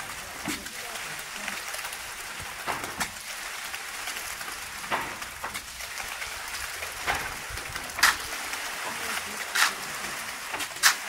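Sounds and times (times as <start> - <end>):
concrete splatting on chute: 2.4 - 3.3, 4.8 - 5.8, 7.0 - 8.4
wet concrete hissing down chute: 7.2 - 11.0.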